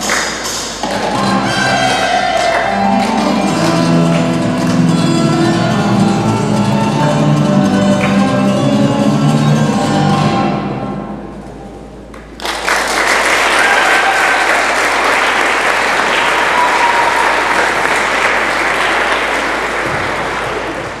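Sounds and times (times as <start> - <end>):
music: 0.1 - 12.1
audience applause: 12.3 - 21.0.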